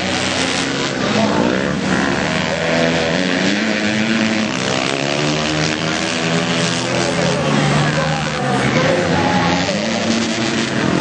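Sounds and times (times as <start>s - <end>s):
dirt bike engines revving: 0.0s - 11.0s.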